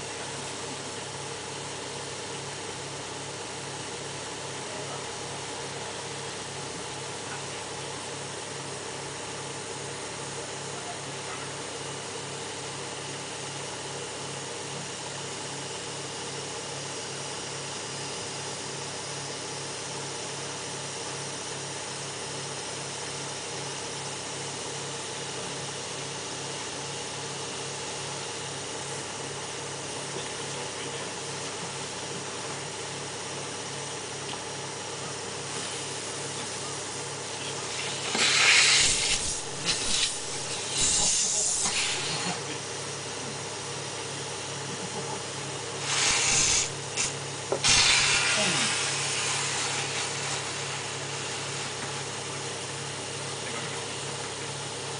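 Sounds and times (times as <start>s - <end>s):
machine droning hum: 0.0s - 54.9s
hose hissing rush: 37.6s - 42.5s, 45.7s - 51.8s.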